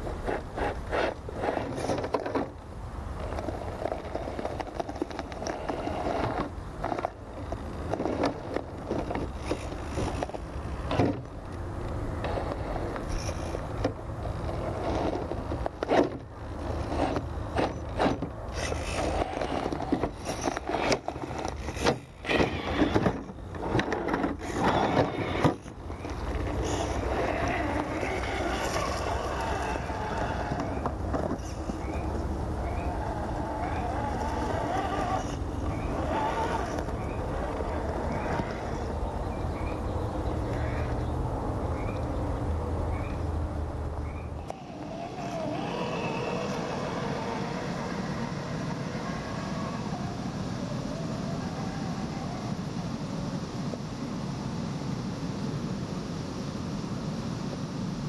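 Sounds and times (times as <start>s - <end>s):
tyres scraping on wood: 0.0s - 2.6s, 3.2s - 11.3s, 12.2s - 39.0s
electric motor whirring: 16.7s - 38.9s.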